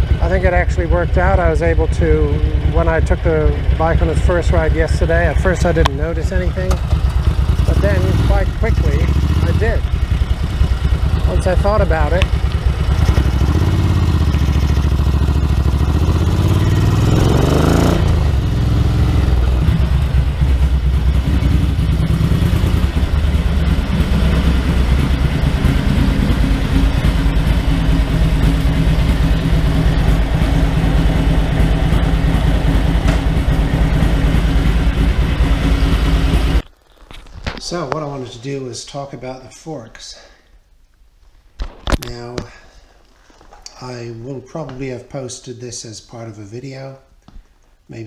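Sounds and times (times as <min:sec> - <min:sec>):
motorcycle engine revving and idling: 0:00.0 - 0:36.7.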